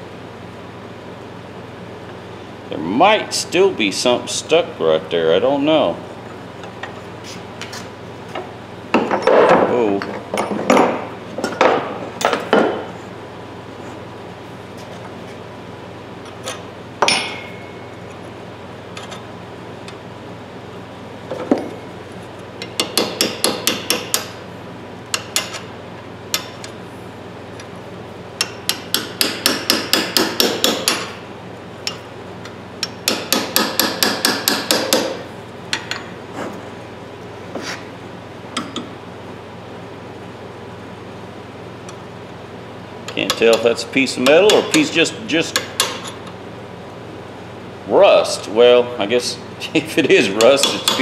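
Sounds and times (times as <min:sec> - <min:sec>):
sharp ringing hammer strike: 0:17.0 - 0:17.9
hammer tapping steel tool: 0:43.3 - 0:44.9, 0:50.4 - 0:51.0.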